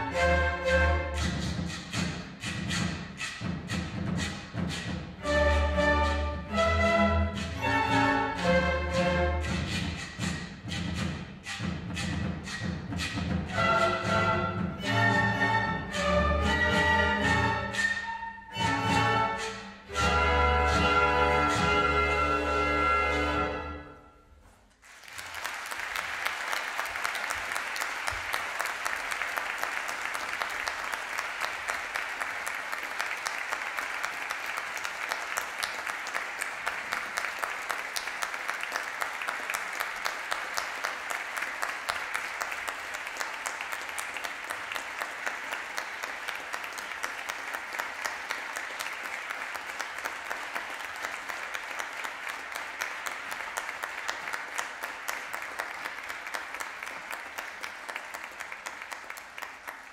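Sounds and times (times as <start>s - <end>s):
audience applauding: 24.8s - 59.9s.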